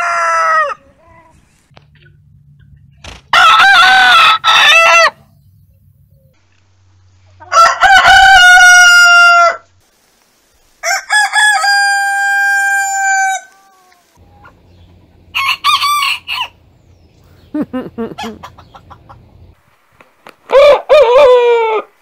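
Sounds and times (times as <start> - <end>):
rooster crowing: 0.0 - 0.9, 3.3 - 5.2, 7.4 - 9.6, 10.8 - 14.2, 15.3 - 16.6, 20.5 - 21.9
chicken clucking: 13.9 - 16.5, 17.5 - 19.6.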